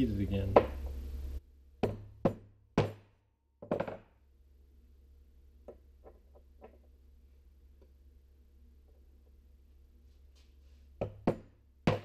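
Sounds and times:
metal tool knocking on workbench: 1.8 - 4.1.

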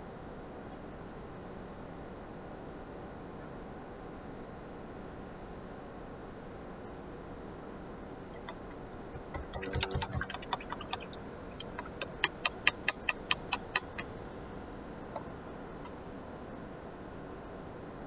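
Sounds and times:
small hard objects tapping: 8.4 - 14.0
fast run of sharp clicks: 8.4 - 14.1.

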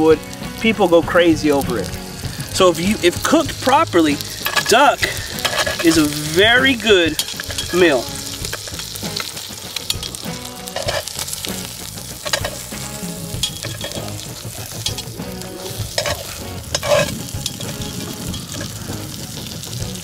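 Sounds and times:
meat sizzling in a pot: 0.0 - 20.0
metal tongs knocking on pot: 4.4 - 11.4, 12.2 - 12.7, 13.3 - 18.8.

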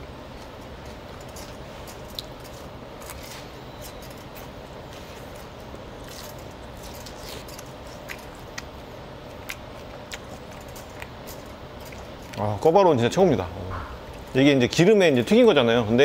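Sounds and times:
steady background hum: 0.0 - 16.0
chewing crispy food: 0.2 - 12.8.

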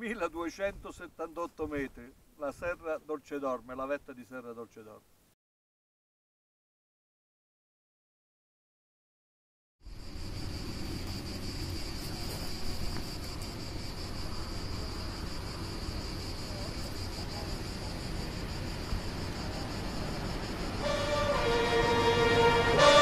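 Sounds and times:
low rumble of wind: 0.0 - 2.9, 9.8 - 21.8.

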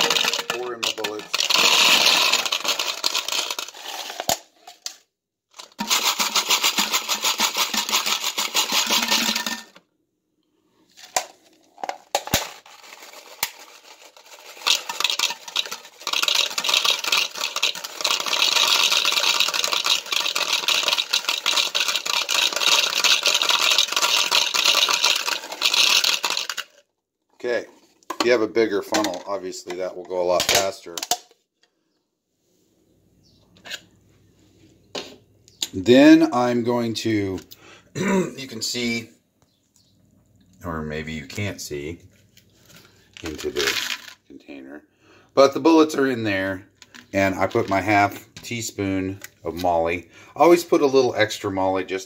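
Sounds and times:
bullets pouring into plastic container: 0.0 - 4.5, 5.6 - 9.8, 11.8 - 26.8, 43.2 - 44.2.

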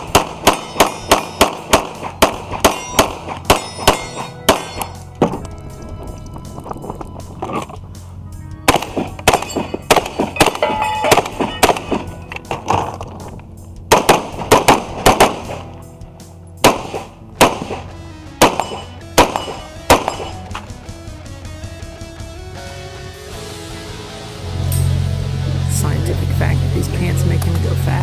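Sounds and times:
rapid gunshots: 0.0 - 5.0, 8.7 - 12.2, 13.9 - 15.7, 16.6 - 20.4
bullets hitting steel targets: 0.0 - 5.4, 8.7 - 13.1, 16.6 - 20.6
background music: 0.0 - 28.0.

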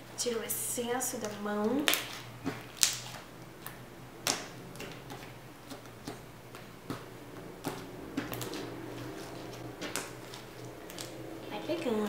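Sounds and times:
slime clicking and popping: 1.2 - 7.0.

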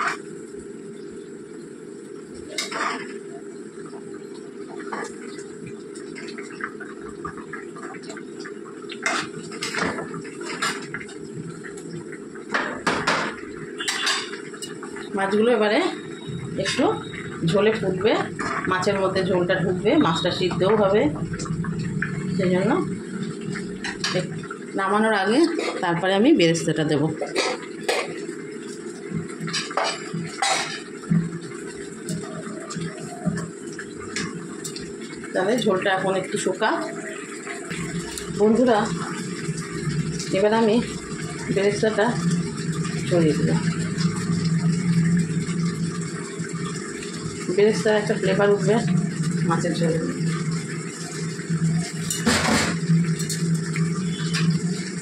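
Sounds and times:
curry simmering and bubbling: 0.0 - 55.0
spatula scraping a pan: 2.5 - 3.2.

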